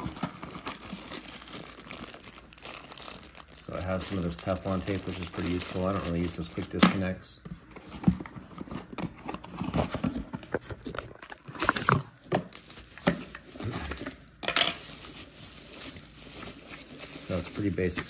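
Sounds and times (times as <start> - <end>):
bubble wrap crinkling: 0.0 - 7.2, 9.4 - 18.0
cardboard box opening: 7.7 - 12.1.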